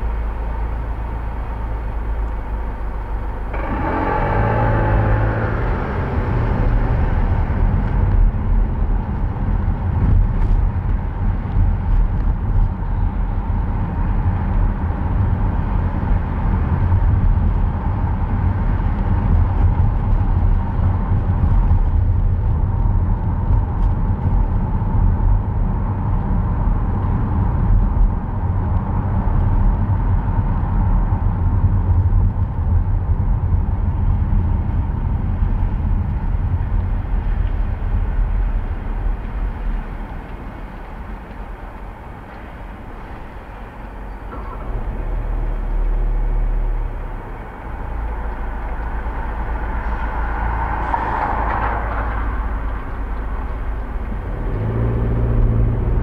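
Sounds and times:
car engine and road rumble: 0.0 - 56.0
tyres on wet road: 0.0 - 56.0.

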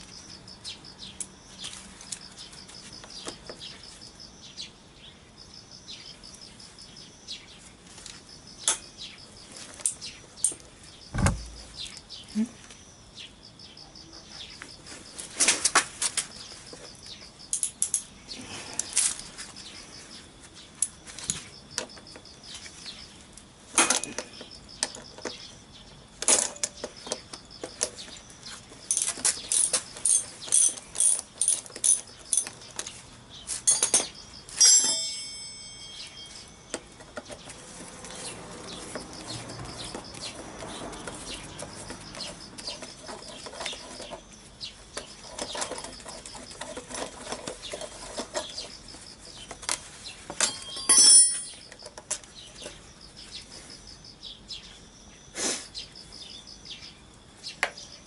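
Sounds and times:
metal tool clanking: 23.8 - 24.4, 33.7 - 37.2, 50.4 - 52.2.

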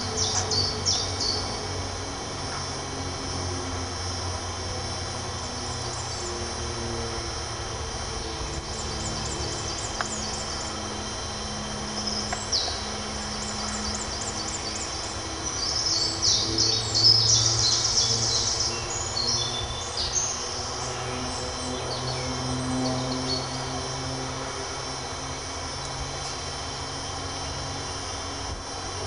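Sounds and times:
birds chirping: 0.0 - 1.8, 5.4 - 7.1, 8.0 - 24.5
low steady hum: 0.0 - 29.0
trilled birdsong: 0.0 - 29.0.

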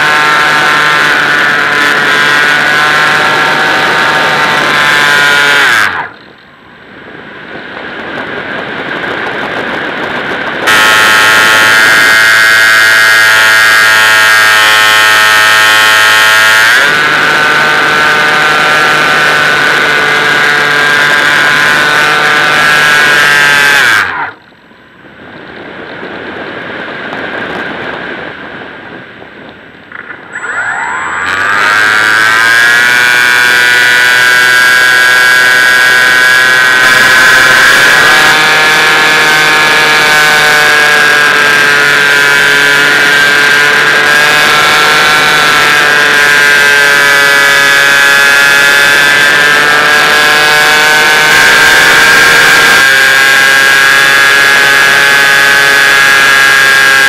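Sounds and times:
wind rushing over microphone: 0.0 - 57.0
model aeroplane motor whining: 9.0 - 24.4, 29.9 - 57.0.

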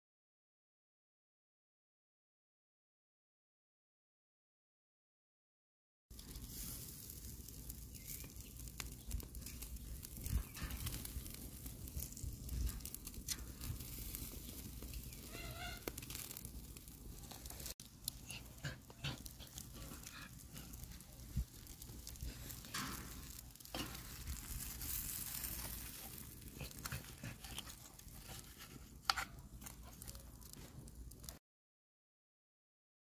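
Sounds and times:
wood fire crackling: 6.1 - 31.4
metal tongs clicking on grill: 10.1 - 14.2, 21.6 - 28.0.

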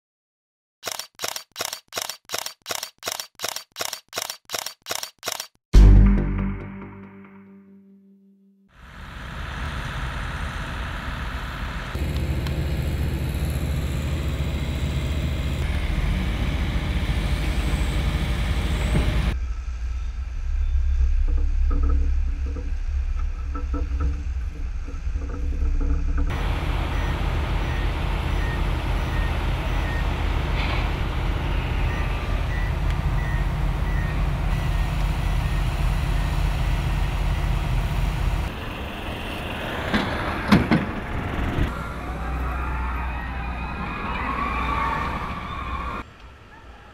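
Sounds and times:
construction machinery engine rumble: 21.2 - 44.2
reversing alarm beeping: 25.2 - 36.7.

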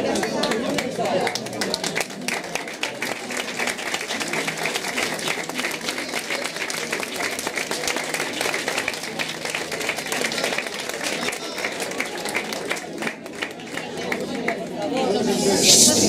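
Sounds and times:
crowd applauding: 0.0 - 14.7.

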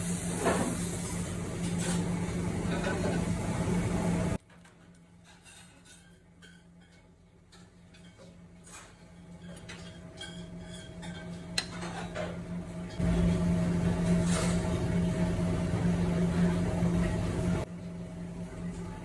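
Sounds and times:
loud steady low hum: 12.9 - 19.0.

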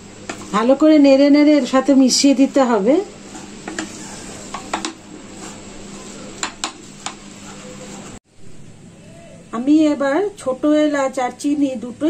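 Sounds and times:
faint sizzle: 0.0 - 12.0
wooden spatula stirring in a pan: 0.1 - 0.8, 2.1 - 8.2
spatula tapping and scraping pan: 0.2 - 0.5, 3.3 - 8.2.

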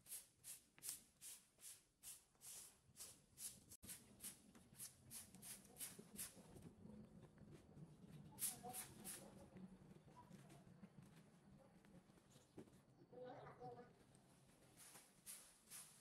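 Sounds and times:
broom sweeping leaves: 0.0 - 6.4, 8.4 - 9.3, 14.7 - 16.0.

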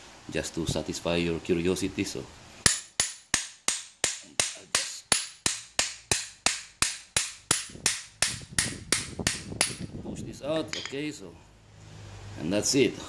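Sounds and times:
hammer striking steel: 2.6 - 9.8.

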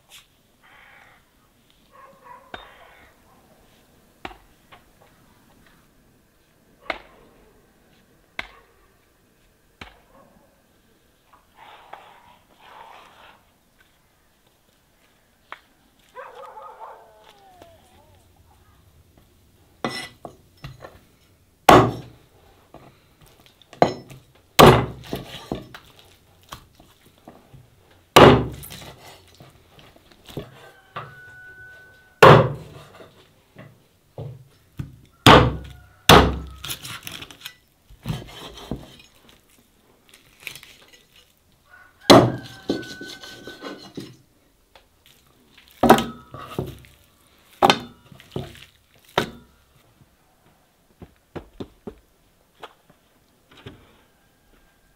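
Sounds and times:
cleaver chopping on wooden board: 21.7 - 22.0, 24.6 - 25.2, 28.2 - 28.7, 35.2 - 36.5, 42.1 - 42.4.

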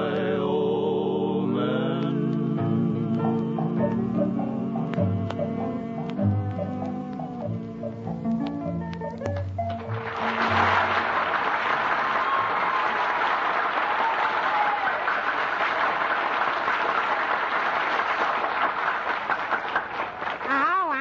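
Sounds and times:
music: 0.0 - 12.6
audience applauding: 8.9 - 21.0.

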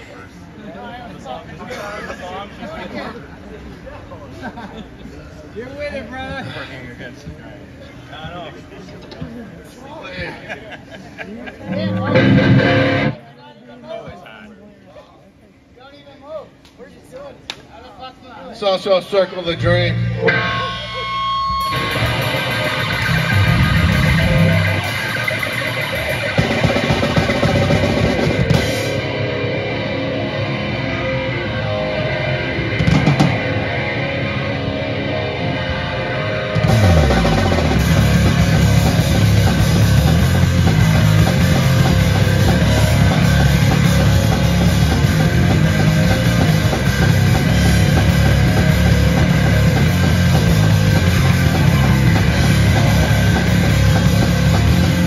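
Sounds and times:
metal band playing: 11.7 - 13.2, 19.5 - 55.0.

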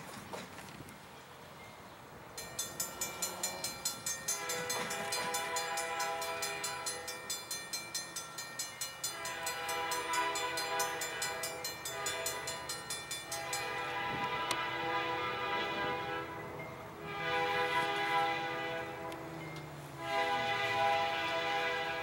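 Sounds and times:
railroad crossing bell dinging: 1.6 - 22.0
locomotive horn blasts: 4.3 - 7.1, 9.0 - 22.0.

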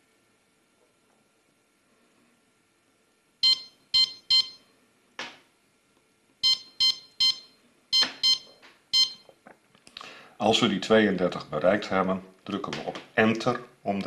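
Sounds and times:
infusion pump key beeps: 3.4 - 4.6, 6.4 - 9.3.

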